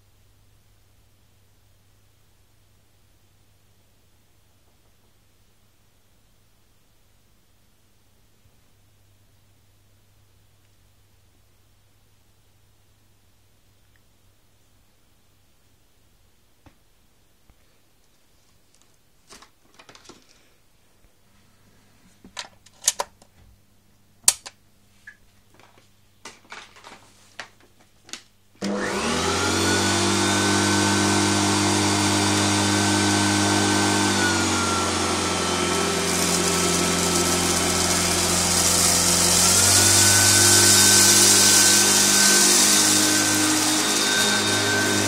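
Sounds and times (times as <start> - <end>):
vacuum cleaner motor whining: 28.6 - 45.0.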